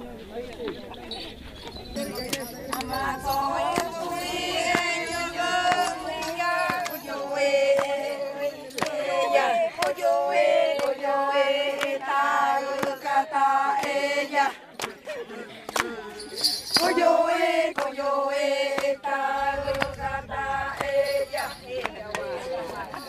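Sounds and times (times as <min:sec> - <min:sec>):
group singing long notes: 0:02.0 - 0:23.0.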